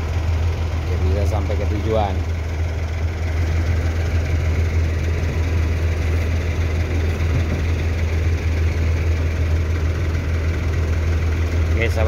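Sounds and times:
diesel bus engine idling: 0.0s - 12.0s.

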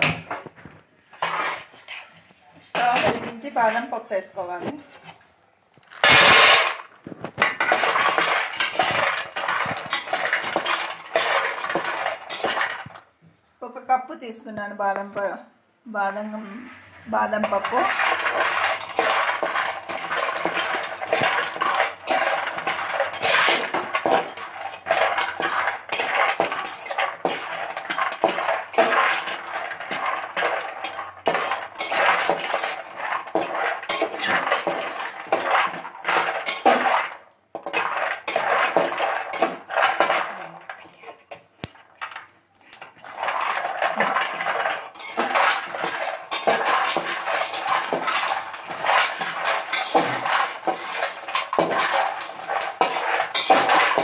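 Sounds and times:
metal spatula scraping a pan: 1.1s - 1.8s, 5.9s - 13.0s, 16.4s - 54.0s
nuts rattling against metal: 7.6s - 13.0s, 17.4s - 54.0s.

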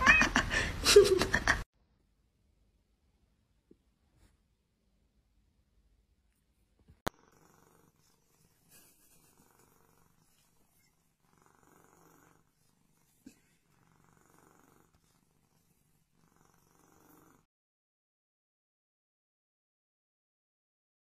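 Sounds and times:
cat purring: 7.1s - 17.5s.

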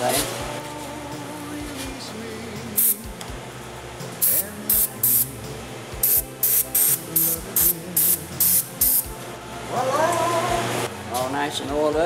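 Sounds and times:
aerosol can spraying: 2.8s - 3.1s, 4.2s - 5.4s, 6.0s - 9.2s.

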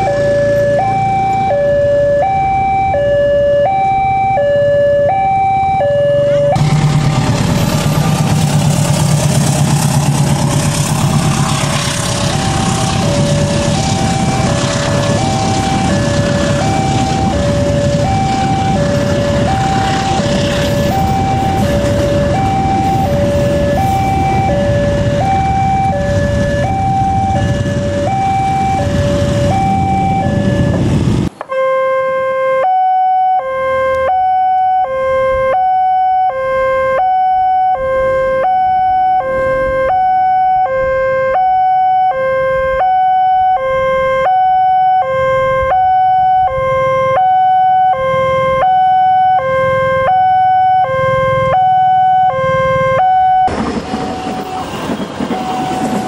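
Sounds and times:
passing train rumble: 0.0s - 31.5s, 45.2s - 56.0s
two-tone electronic crossing alarm: 0.0s - 56.0s.

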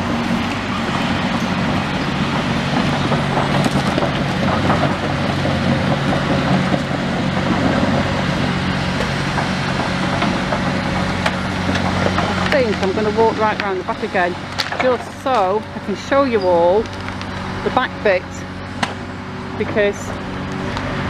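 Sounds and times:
excavator diesel engine running: 0.0s - 21.0s
light knocks and clatter: 2.7s - 8.0s.

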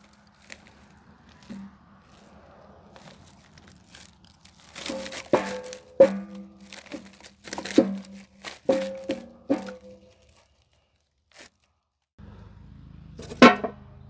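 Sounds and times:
mesh bag rustling: 0.0s - 12.1s
firewood knocking against steel barrel: 4.9s - 10.0s, 13.3s - 13.8s.

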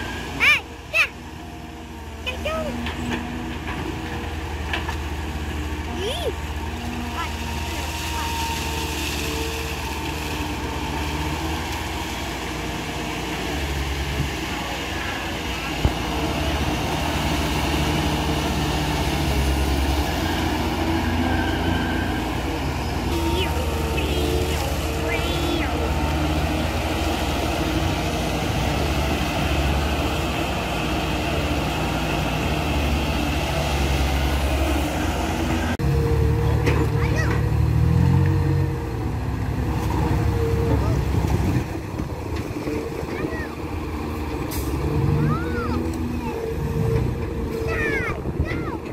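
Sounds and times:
excavator diesel engine under load: 0.0s - 48.9s.

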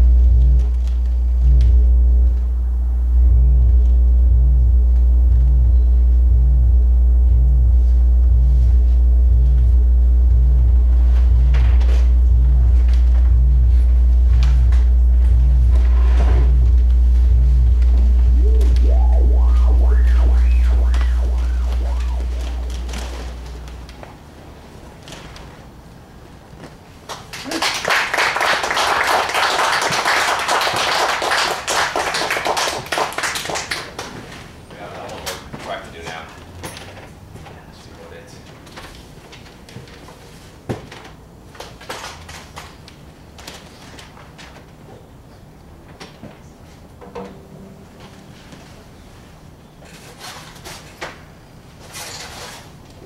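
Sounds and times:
faint higher steady tones: 0.0s - 24.1s
tone sweeping up and down: 0.0s - 24.1s
very low steady hum: 0.0s - 26.0s
audience applauding: 27.3s - 34.0s.

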